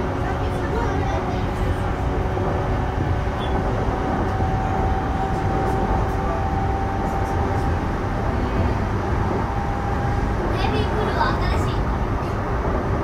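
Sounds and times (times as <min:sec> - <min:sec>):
train wheels rumbling on rail: 0:00.0 - 0:13.0
electric train motor whine: 0:01.3 - 0:10.8.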